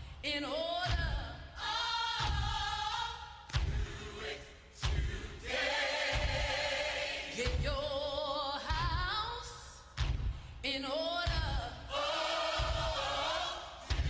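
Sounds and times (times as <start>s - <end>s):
choir singing gospel: 0.2s - 9.2s, 10.8s - 14.0s
low thumping beat: 0.9s - 1.4s, 2.2s - 4.2s, 4.8s - 5.4s, 6.0s - 8.1s, 11.2s - 14.0s.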